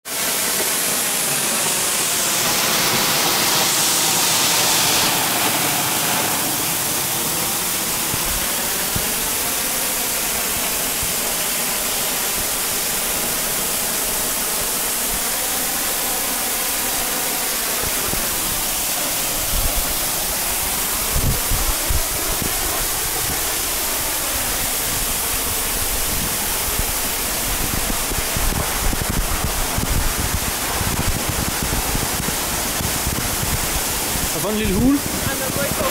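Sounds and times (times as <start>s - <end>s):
waterfall splashing: 0.1s - 35.9s.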